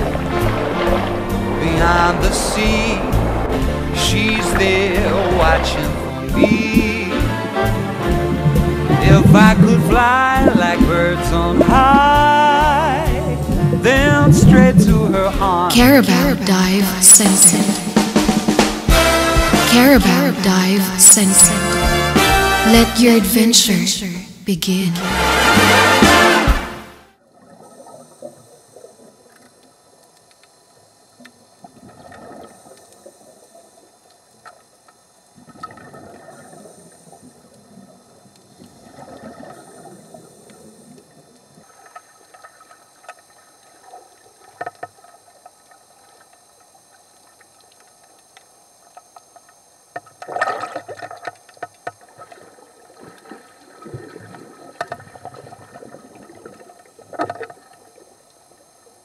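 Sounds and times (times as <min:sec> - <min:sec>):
water sloshing and gurgling: 0:00.0 - 0:19.6, 0:25.3 - 0:59.0
small clicks: 0:29.3 - 0:30.6.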